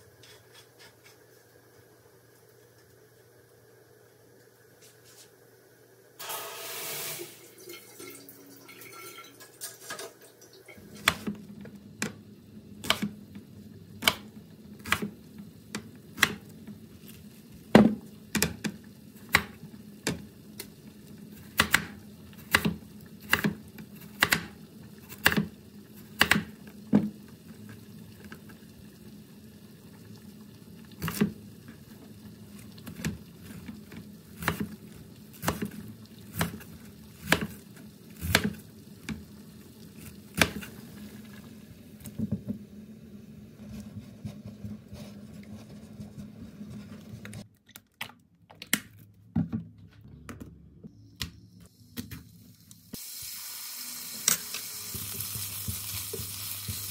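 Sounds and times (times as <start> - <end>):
knife chopping on wooden board: 21.5 - 23.6
shower head spraying water: 51.8 - 56.9.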